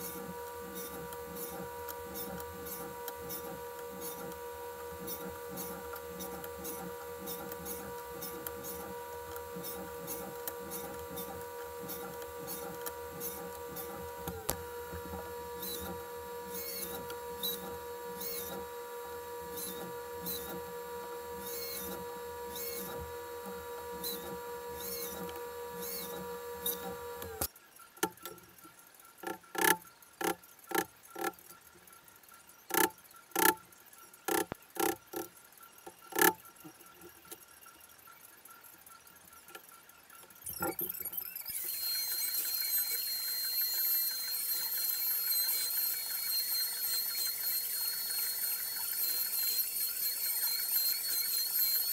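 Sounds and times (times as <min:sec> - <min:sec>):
workshop machine humming: 0:00.0 - 0:27.5, 0:40.5 - 0:51.9.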